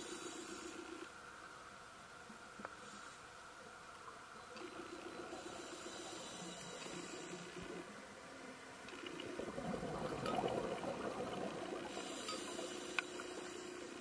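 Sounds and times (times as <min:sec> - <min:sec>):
diver's bubbles gurgling underwater: 0:09.1 - 0:12.0.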